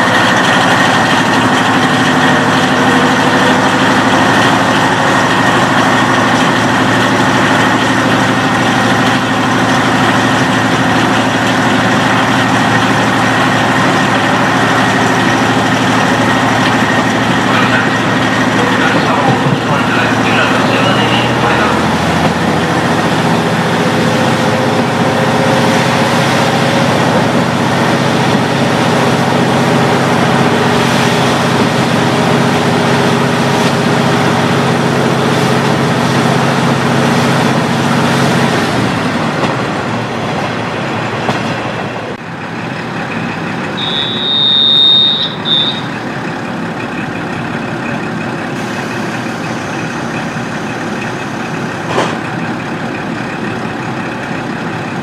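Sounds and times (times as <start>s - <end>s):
diesel railcar engine running: 0.0s - 55.0s
brief high steady tone: 43.8s - 46.0s.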